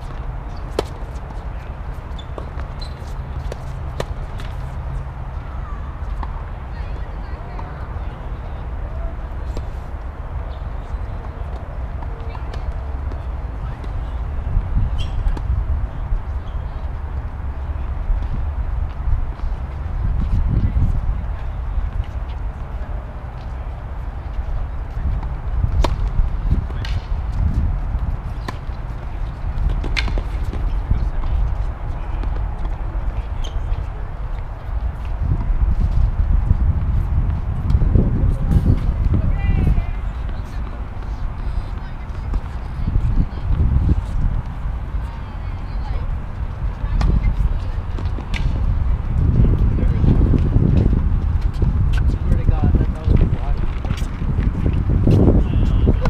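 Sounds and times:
tennis ball bouncing: 0.1 - 1.4, 2.2 - 5.1, 25.1 - 27.1, 28.4 - 33.5, 46.7 - 48.6
steady low rumble: 12.6 - 56.0.

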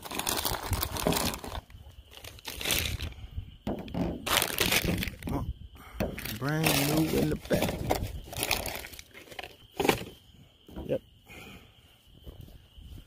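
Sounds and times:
plastic bag crinkling: 0.0 - 3.2, 4.2 - 5.4, 6.2 - 9.6.

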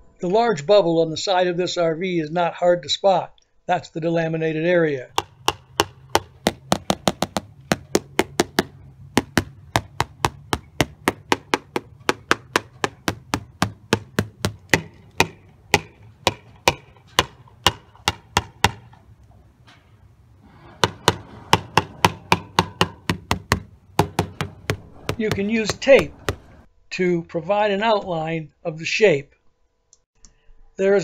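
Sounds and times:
screwdriver handle tapping fiberglass: 5.2 - 18.9.

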